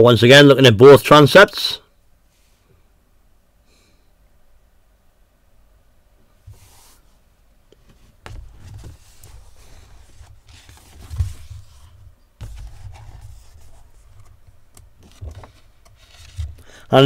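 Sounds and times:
handling thuds and clicks: 0:07.7 - 0:16.7.

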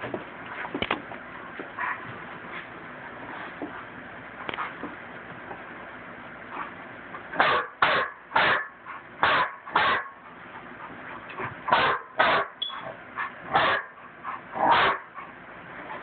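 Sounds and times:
large dog barking: 0:07.4 - 0:10.2, 0:11.7 - 0:12.6, 0:13.5 - 0:15.2.

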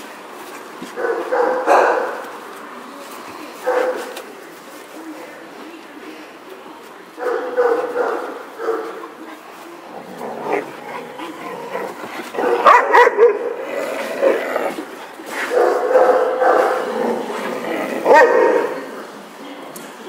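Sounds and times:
dogs yipping and barking: 0:10.5 - 0:13.6.

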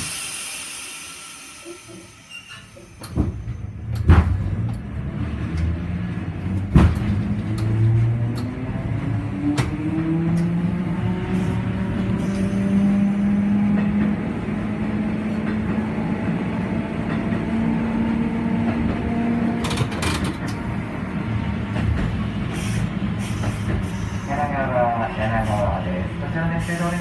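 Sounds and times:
tram motor hum: 0:00.0 - 0:27.0
wheels rumbling on rails: 0:01.6 - 0:27.0
sharp knocks from wheels: 0:06.6 - 0:07.8.

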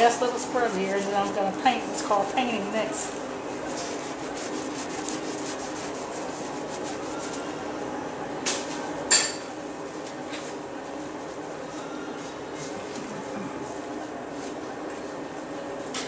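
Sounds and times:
steady hum: 0:00.0 - 0:16.0
sponge rubbing on skin: 0:00.6 - 0:01.6, 0:03.6 - 0:07.5.

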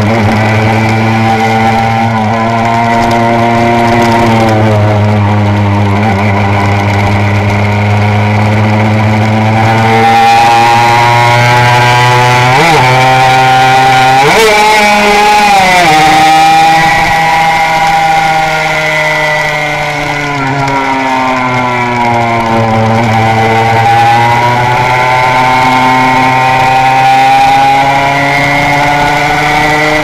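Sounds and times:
two-stroke racing engine revving: 0:00.0 - 0:30.0.

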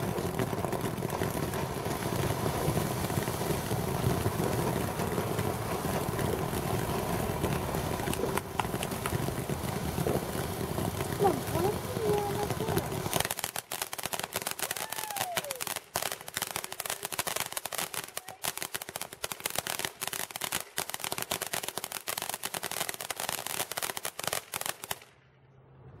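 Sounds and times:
fireworks crackling: 0:00.0 - 0:25.2.

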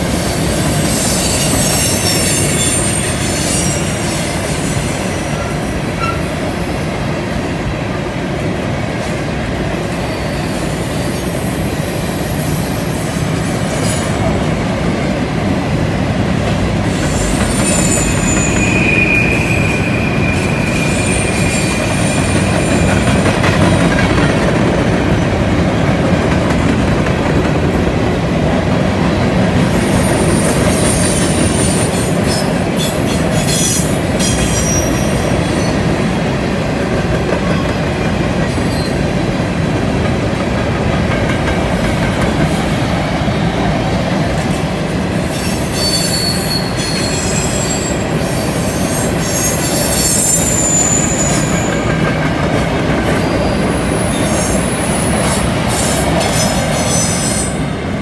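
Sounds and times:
train wheels rumbling on rails: 0:00.0 - 0:58.0
high wheel squeal: 0:00.4 - 0:06.3, 0:16.9 - 0:23.0, 0:29.8 - 0:35.8, 0:45.3 - 0:51.9, 0:53.2 - 0:57.8.

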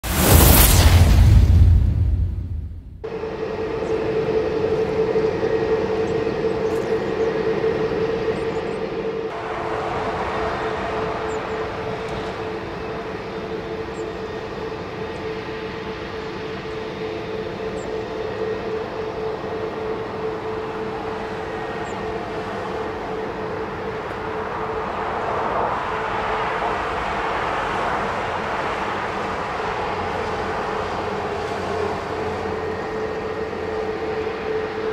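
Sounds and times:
jet engines whining at low thrust: 0:00.0 - 0:34.9.

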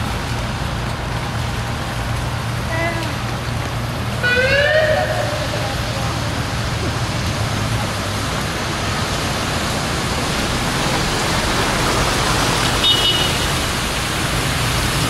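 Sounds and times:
water splashing from truck wheels: 0:00.0 - 0:15.0.

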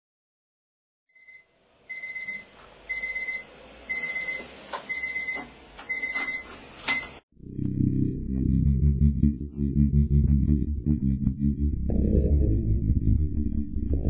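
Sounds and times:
alarm clock electronic beeps: 0:01.1 - 0:07.1.

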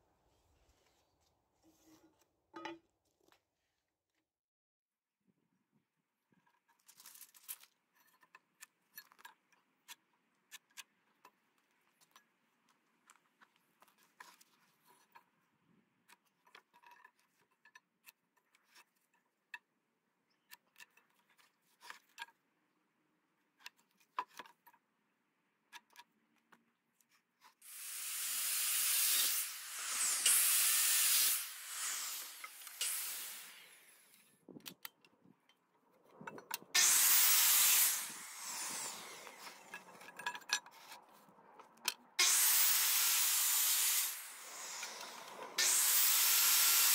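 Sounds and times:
circular saw cutting wood: 0:27.6 - 0:34.3, 0:36.5 - 0:41.2, 0:42.2 - 0:46.9.

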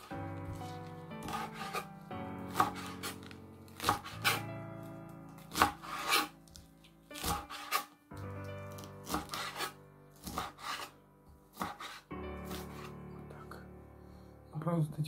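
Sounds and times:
knife chopping on cutting board: 0:00.0 - 0:01.9, 0:02.5 - 0:04.5, 0:05.4 - 0:07.9, 0:08.7 - 0:10.9, 0:11.5 - 0:12.9
background music: 0:00.0 - 0:15.0.

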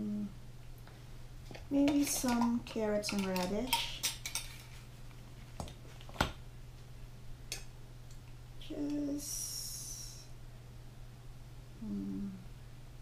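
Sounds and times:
steady low hum: 0:00.0 - 0:13.0
utensils clicking and tapping: 0:01.5 - 0:04.8
high-pitched hiss: 0:09.0 - 0:10.4.

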